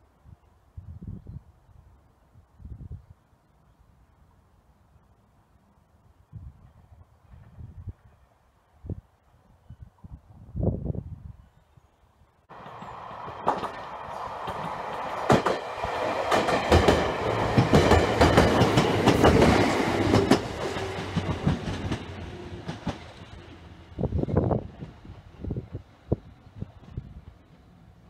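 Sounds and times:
wheels clacking over rail joints: 12.5 - 23.4
electric train passing: 12.5 - 28.0.

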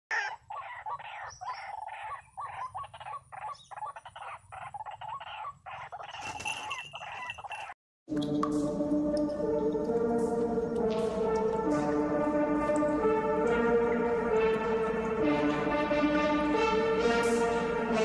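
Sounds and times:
waterhen harsh calls: 0.1 - 7.7.

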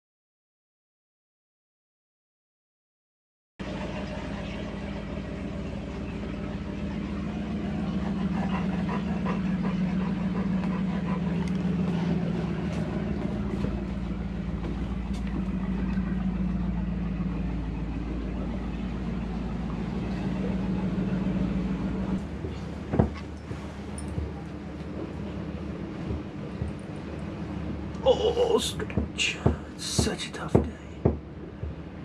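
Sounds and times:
low mechanical hum: 3.6 - 32.0.

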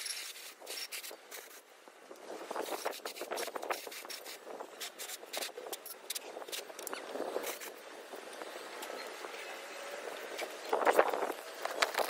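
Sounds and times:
metal parts clinking and scraping: 0.0 - 1.6, 3.4 - 7.8.

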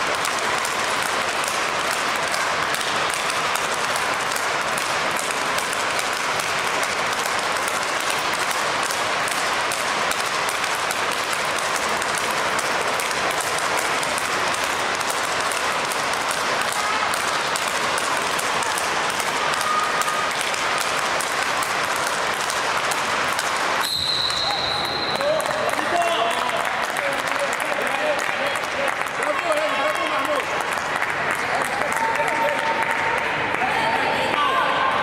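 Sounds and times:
rackets striking ball: 0.0 - 25.9
crowd clapping: 0.0 - 34.7.

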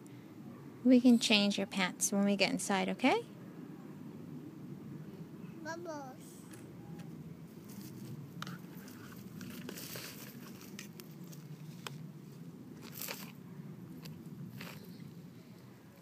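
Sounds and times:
toy scoop scraping in soil: 8.8 - 11.4, 12.8 - 13.4.

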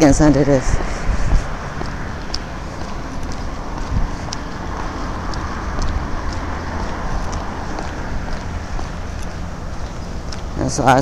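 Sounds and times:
footsteps on concrete: 0.0 - 11.0
road traffic rushing: 0.0 - 11.0
wind buffeting microphone: 0.0 - 11.0.

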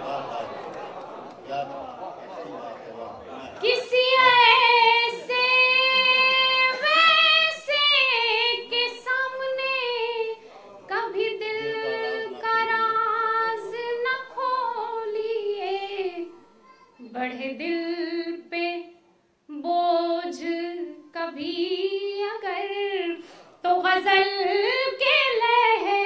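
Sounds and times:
woman singing unaccompanied: 3.6 - 16.3, 17.0 - 26.0.

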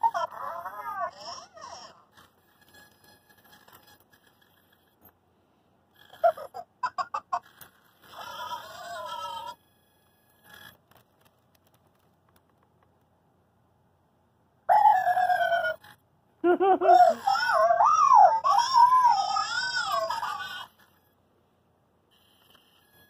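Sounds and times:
toy robot warbling call: 8.1 - 9.6, 14.7 - 16.0, 16.9 - 20.9
toy robot electronic chirps and beeps: 22.1 - 23.0.

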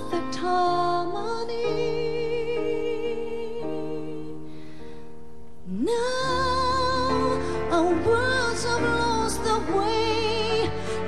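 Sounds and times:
woman singing a slow ballad: 0.0 - 4.7, 5.6 - 11.0.

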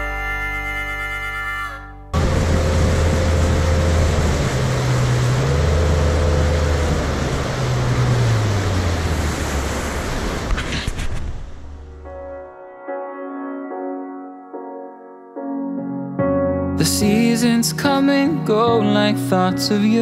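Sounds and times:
boat engine droning: 2.1 - 12.3
rush of wind and water: 2.2 - 11.7.

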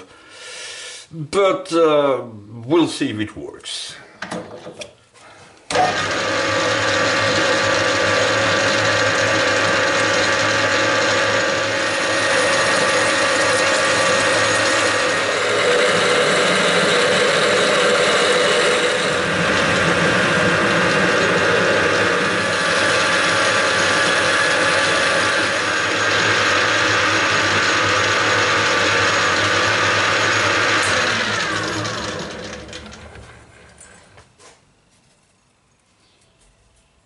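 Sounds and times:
drill boring into metal: 5.7 - 34.0
metal lathe running with gear whine: 5.7 - 34.2.

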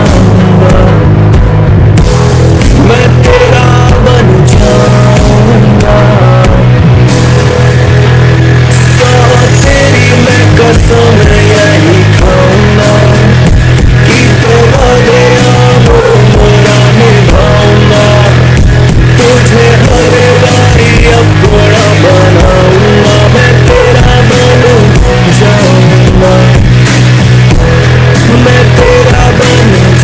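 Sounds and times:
music with heavy bass: 0.0 - 30.0.

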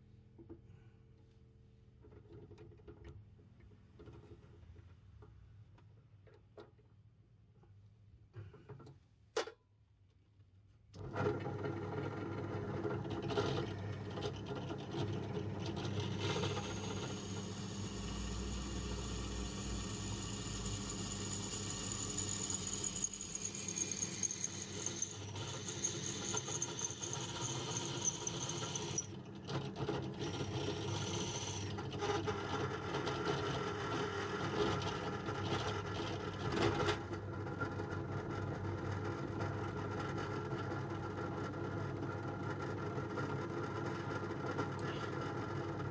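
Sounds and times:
drill press running: 11.4 - 29.2, 30.2 - 31.8.

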